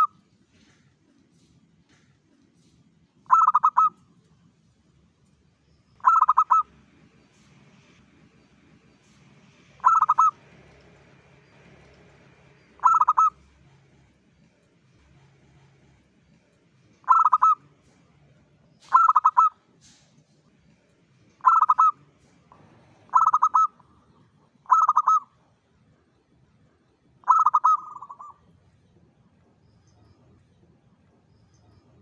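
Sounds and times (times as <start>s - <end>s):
dove cooing: 3.3s - 4.0s, 6.0s - 6.8s, 9.8s - 10.4s, 12.8s - 13.9s, 17.0s - 18.0s, 18.8s - 19.6s, 21.4s - 22.0s, 23.0s - 25.3s, 27.2s - 28.4s.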